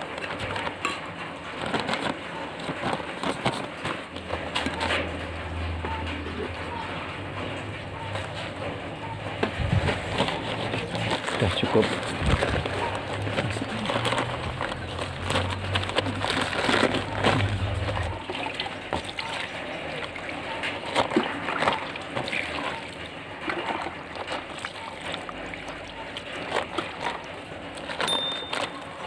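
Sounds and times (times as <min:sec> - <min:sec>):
hands working wet soil: 0:09.6 - 0:28.9.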